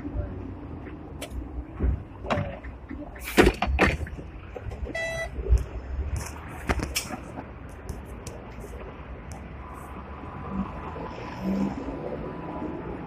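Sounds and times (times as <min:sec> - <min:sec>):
tram rumbling: 0:00.0 - 0:13.0
short electronic beep: 0:05.0 - 0:05.4.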